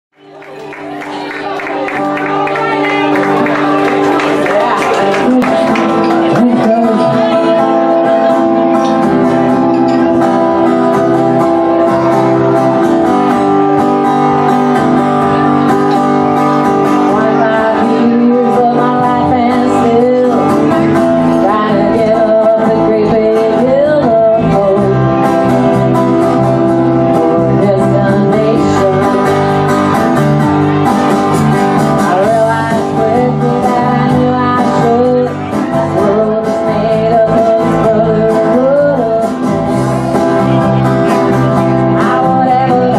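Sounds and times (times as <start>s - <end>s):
strummed acoustic guitar: 0.2s - 42.9s
woman singing: 1.1s - 8.8s, 17.0s - 26.0s, 26.9s - 29.4s, 32.0s - 39.6s, 41.5s - 42.9s
electric bass: 2.6s - 42.9s.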